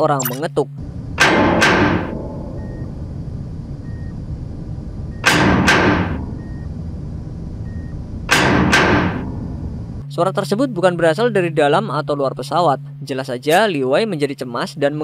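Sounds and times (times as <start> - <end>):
steady low rumble: 0.0 - 15.0
heavy ringing knocks: 0.8 - 6.8, 8.3 - 10.0.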